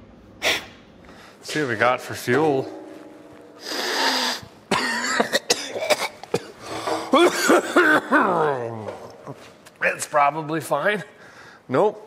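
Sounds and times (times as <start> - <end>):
man coughing and clearing throat: 4.7 - 9.5.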